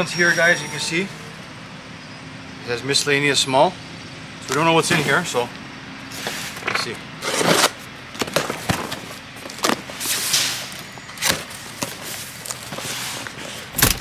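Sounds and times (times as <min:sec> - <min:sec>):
cardboard scraping and rustling: 0:06.1 - 0:14.0
box cutter slicing tape: 0:07.2 - 0:07.8, 0:13.7 - 0:14.0.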